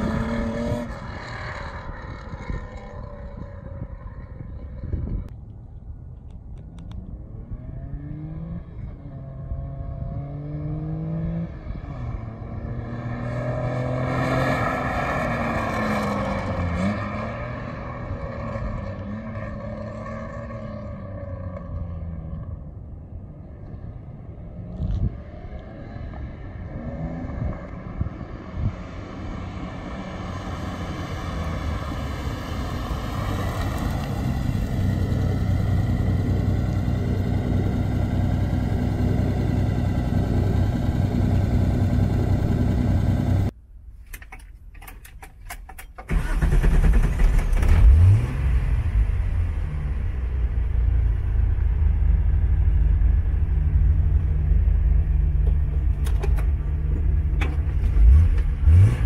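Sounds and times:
race car engine passing: 0:07.6 - 0:22.0.

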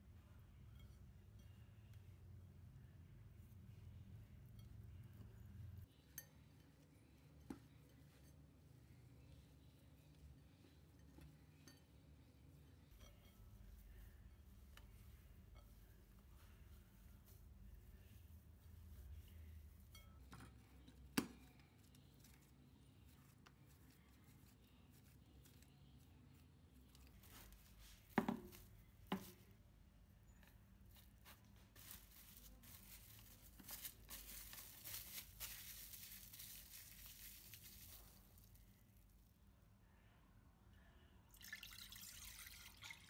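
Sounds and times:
plastic wrap crinkling: 0:31.0 - 0:39.0.

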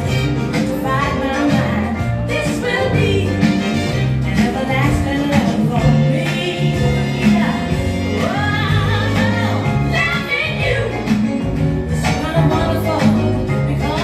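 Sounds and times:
dance music with singing: 0:00.0 - 0:14.0.

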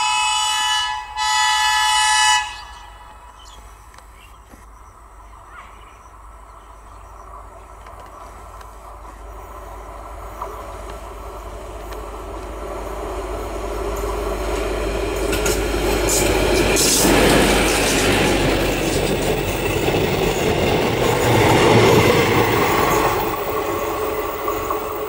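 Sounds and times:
wheels running on rails: 0:07.4 - 0:25.0.

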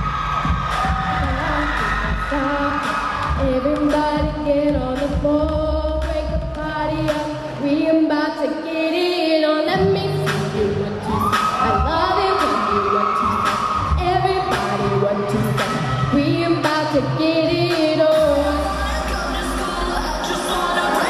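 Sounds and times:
backing track with beat and bass: 0:00.0 - 0:07.7, 0:09.8 - 0:21.0
women singing: 0:00.9 - 0:21.0.

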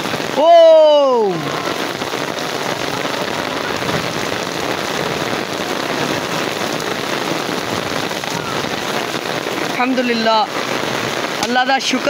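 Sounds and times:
heavy rain on pavement: 0:00.0 - 0:12.0.

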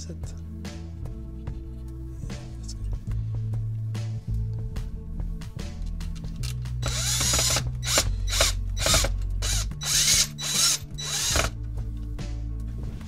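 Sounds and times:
cordless drill bursts ratcheting: 0:06.8 - 0:11.6.

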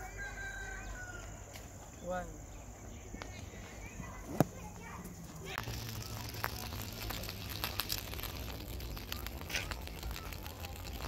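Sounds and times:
spinning top scratching dirt: 0:05.1 - 0:11.0.

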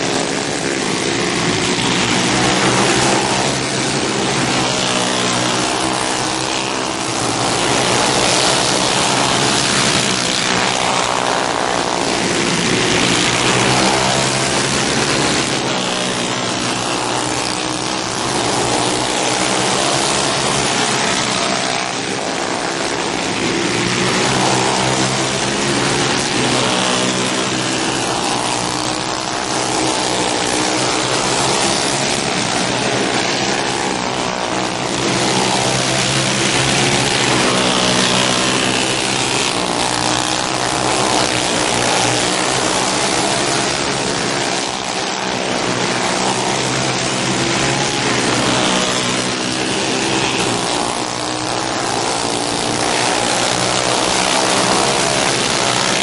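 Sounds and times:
go-kart engines revving: 0:00.0 - 0:56.0.

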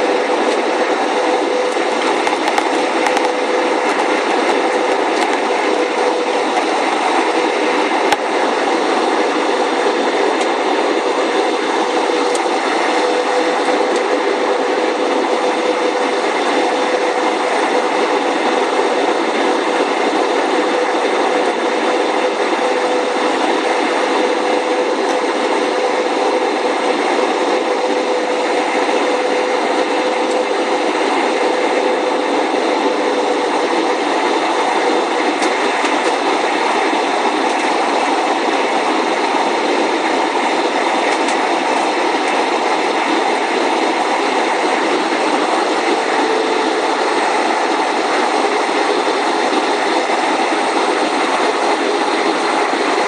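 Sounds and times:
jet engines roaring in cabin: 0:00.0 - 0:53.0
rushing air: 0:00.0 - 0:53.0
steady hum: 0:00.0 - 0:53.0.

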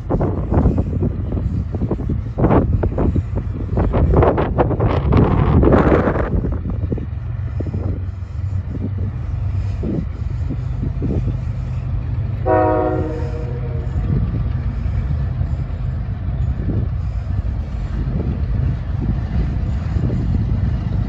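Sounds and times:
low train rumble: 0:00.0 - 0:21.0
locomotive air horn blast: 0:12.4 - 0:14.1.

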